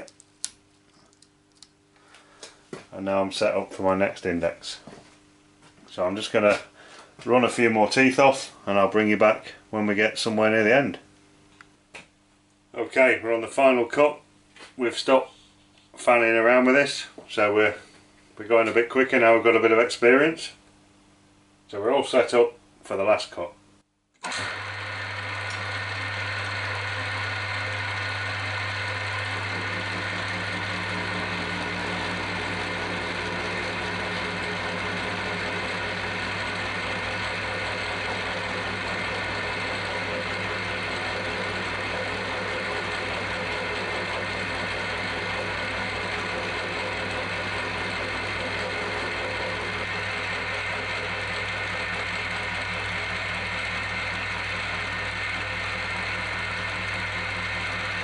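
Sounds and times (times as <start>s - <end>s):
milling machine humming: 24.2s - 58.0s.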